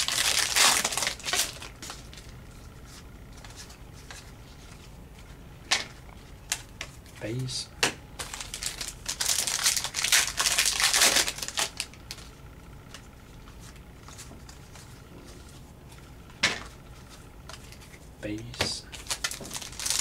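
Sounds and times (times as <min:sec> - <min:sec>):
card pack wrapper crinkling: 0:00.0 - 0:02.4, 0:08.2 - 0:12.3, 0:18.9 - 0:20.0.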